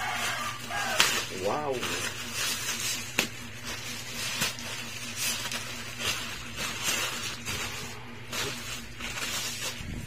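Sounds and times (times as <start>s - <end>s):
plastic bag rustling and crinkling: 0.0s - 10.0s.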